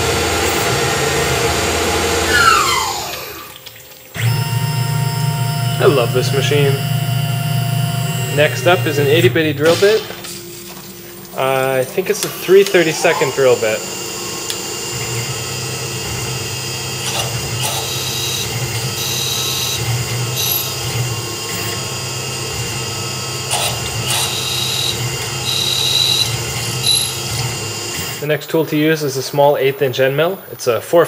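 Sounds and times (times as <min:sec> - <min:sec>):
milling machine spindle whine: 0:00.0 - 0:31.0
drill bit squealing: 0:01.6 - 0:03.6, 0:04.2 - 0:10.0, 0:11.3 - 0:28.3.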